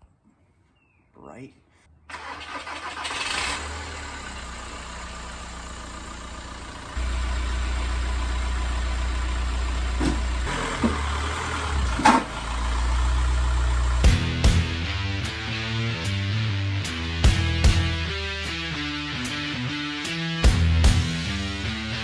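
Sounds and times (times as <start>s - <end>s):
diesel car engine running: 2.1s - 15.8s.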